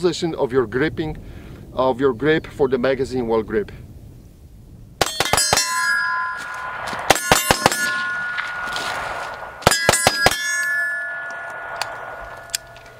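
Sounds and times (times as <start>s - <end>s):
metallic ringing of steel targets: 5.0s - 12.9s
rifle shots: 6.6s - 10.7s.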